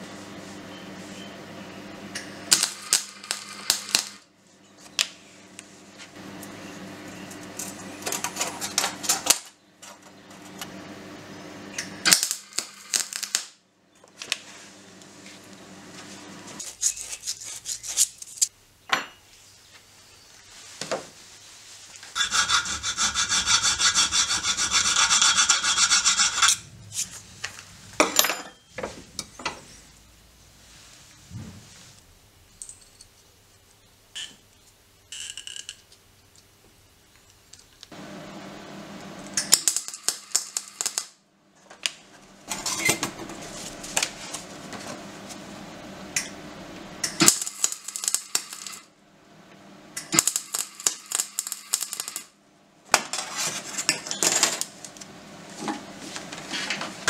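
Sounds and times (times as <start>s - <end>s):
rhythmic metal scraping: 22.2s - 27.2s.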